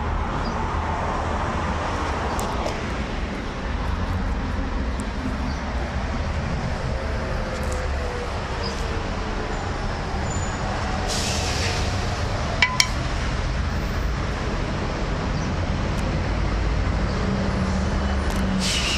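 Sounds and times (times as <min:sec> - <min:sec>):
metallic clinks: 0:12.6 - 0:13.0.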